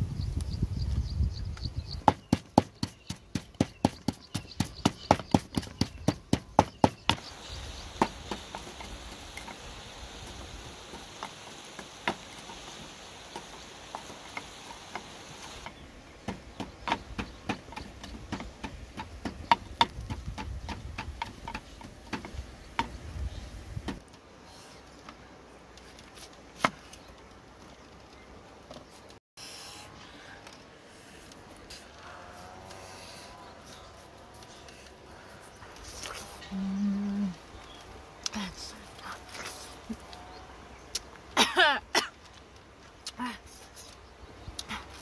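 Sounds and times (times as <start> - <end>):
wooden pestle pounding in mortar: 2.0 - 7.2, 16.3 - 23.0.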